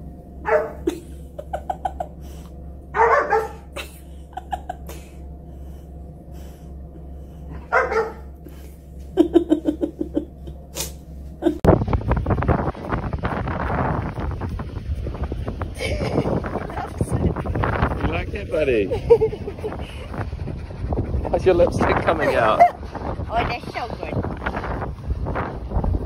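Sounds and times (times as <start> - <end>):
low steady hum: 0.0 - 26.0
wind buffeting microphone: 11.6 - 26.0
dog vocalizing: 19.2 - 23.5.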